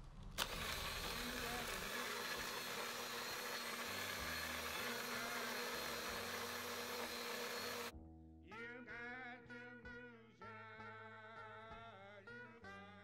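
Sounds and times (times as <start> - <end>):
blender running: 0.4 - 7.9.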